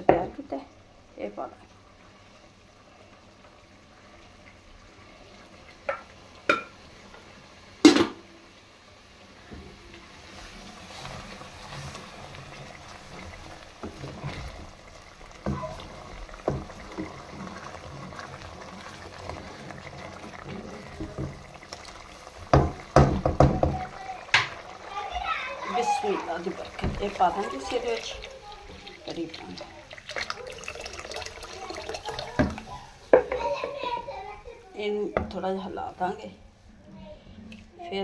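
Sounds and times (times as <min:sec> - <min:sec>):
mixture sizzling and bubbling in pan: 0:00.0 - 0:38.0
wooden spoon stirring: 0:09.5 - 0:36.2.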